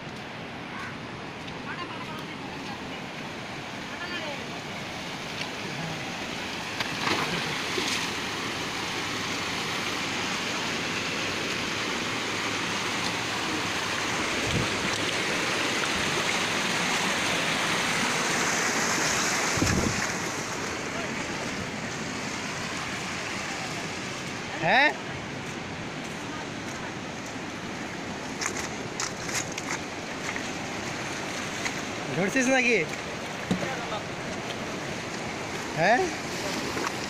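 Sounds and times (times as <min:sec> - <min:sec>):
stream cascading over rocks: 0:00.0 - 0:37.0.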